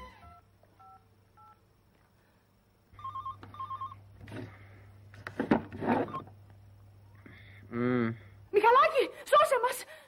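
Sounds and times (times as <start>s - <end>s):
mobile phone keypad beeps: 3.0s - 4.0s.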